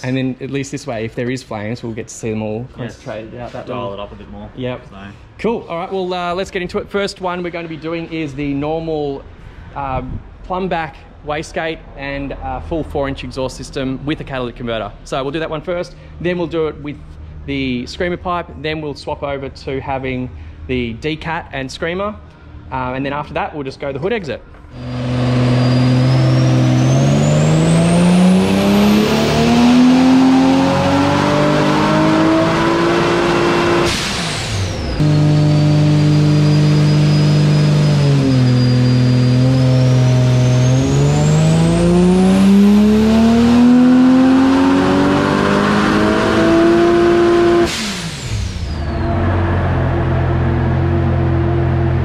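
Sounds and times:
car engine revving on dyno: 24.7 - 52.0
high turbo whine: 24.7 - 52.0.

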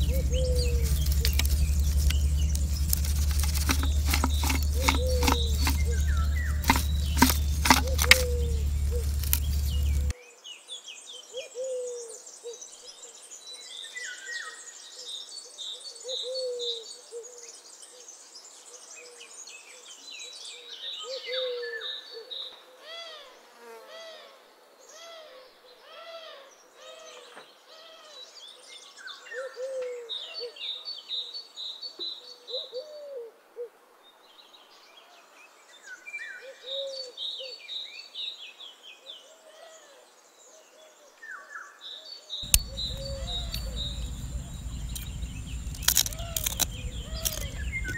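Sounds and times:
high bird chirps and trills: 0.0 - 10.1, 42.4 - 47.9
low hooting bird call: 0.0 - 10.1, 42.4 - 47.9.

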